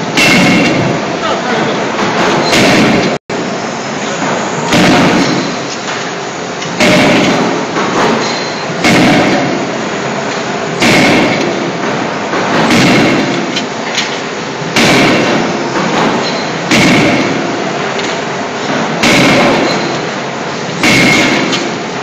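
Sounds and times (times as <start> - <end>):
forging hammer striking steel: 0.0 - 0.9, 2.1 - 3.2, 4.7 - 5.7, 6.7 - 9.7, 10.8 - 11.7, 12.4 - 13.7, 14.8 - 18.1, 18.7 - 20.1, 20.8 - 21.8
steady machine noise: 0.0 - 22.0.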